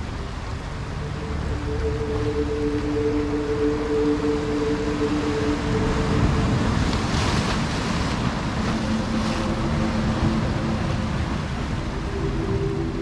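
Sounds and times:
faint held tones: 0:00.8 - 0:07.0
surf breaking on rocks: 0:04.8 - 0:13.0.

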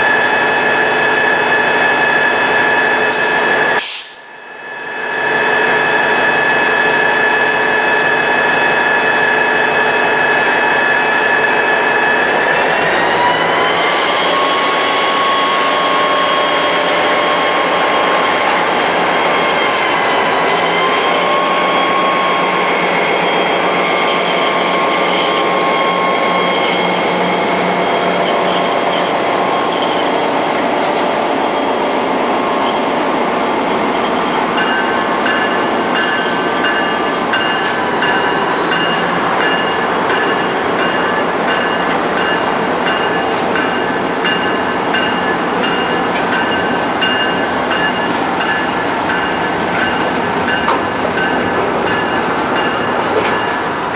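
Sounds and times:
train wheel flanges squealing: 0:00.0 - 0:53.9
regular ringing: 0:34.6 - 0:53.9.

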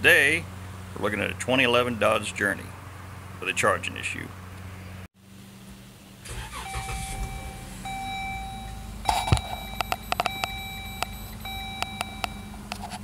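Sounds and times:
car engine starting and idling: 0:05.4 - 0:13.0
car warning chime: 0:06.4 - 0:12.7
sharp clicks: 0:09.1 - 0:12.4.

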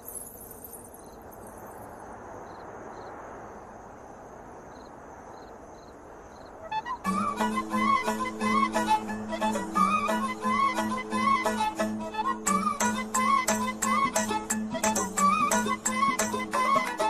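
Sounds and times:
crickets chirping: 0:00.0 - 0:11.4.

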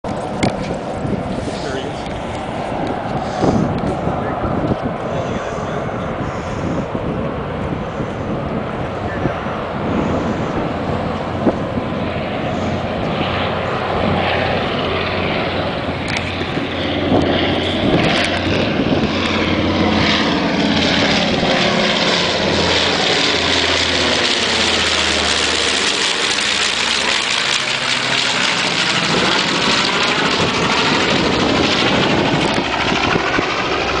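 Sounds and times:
propeller plane engines droning: 0:00.0 - 0:34.0.

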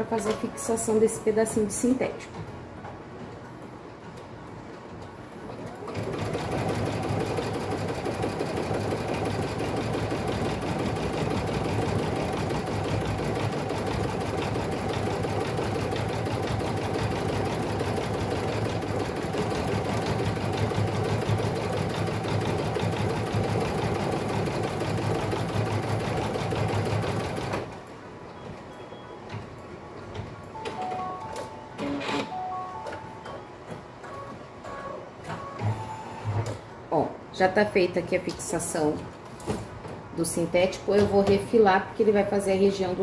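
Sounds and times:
embroidery machine stitching: 0:05.8 - 0:27.7.

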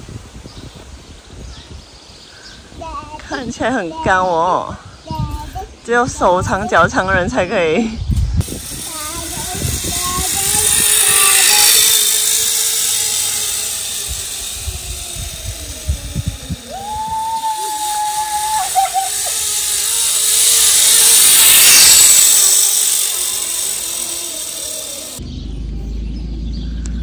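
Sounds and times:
pulley trolley whirring on cable: 0:08.4 - 0:25.2.

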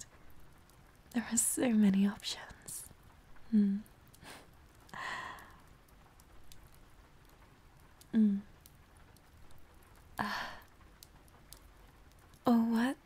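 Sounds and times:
faint clicks: 0:00.0 - 0:12.5
woman humming: 0:03.4 - 0:04.0, 0:08.1 - 0:08.5
woman sighing: 0:03.5 - 0:04.4, 0:05.0 - 0:05.6, 0:08.1 - 0:08.5, 0:10.2 - 0:10.7.

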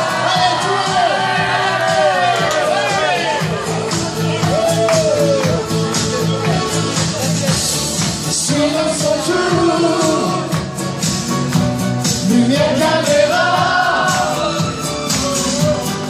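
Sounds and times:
amplified band music: 0:00.0 - 0:16.0
people singing into microphones: 0:08.3 - 0:10.8, 0:12.2 - 0:16.0.

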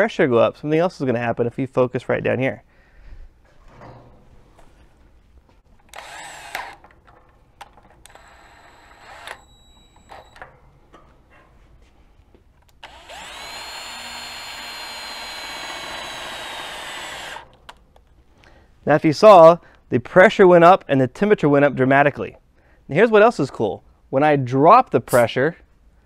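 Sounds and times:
power drill running: 0:05.8 - 0:06.9, 0:08.0 - 0:10.4, 0:12.7 - 0:17.6.

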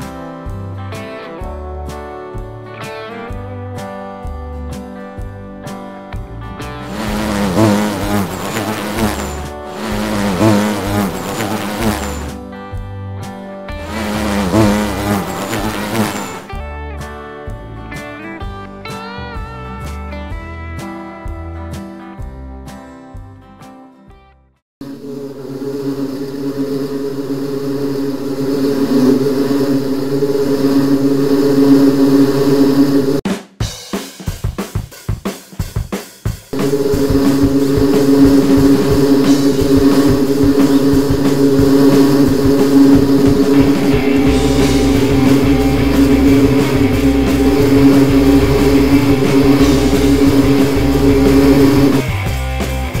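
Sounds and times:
rock music with drums and guitar: 0:00.0 - 0:23.8, 0:33.3 - 0:53.0
bees buzzing: 0:06.9 - 0:12.3, 0:13.8 - 0:16.5, 0:24.8 - 0:33.2, 0:36.6 - 0:52.0.

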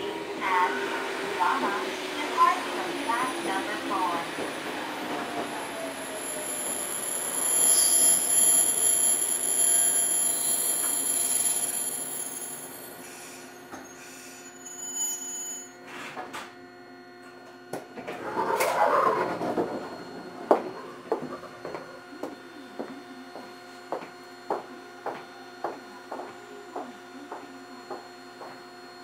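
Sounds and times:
electric train running: 0:00.0 - 0:15.6
high-pitched squeal: 0:05.1 - 0:15.7.

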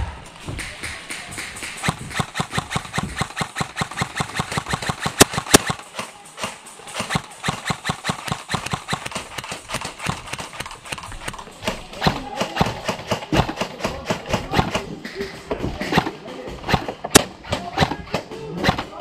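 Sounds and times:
sharp gun cracks: 0:00.2 - 0:19.0
airsoft gun clicks: 0:00.3 - 0:12.9.

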